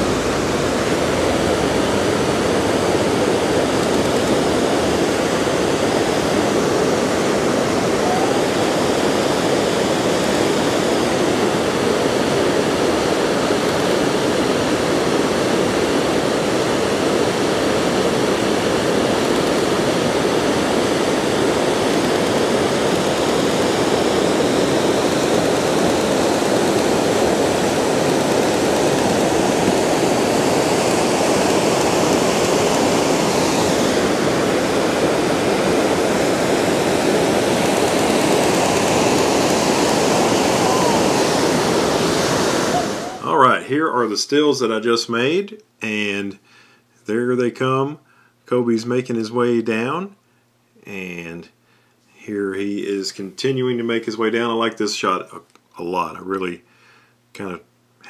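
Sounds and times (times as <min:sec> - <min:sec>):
whitewater rushing over boulders: 0:17.8 - 0:43.3.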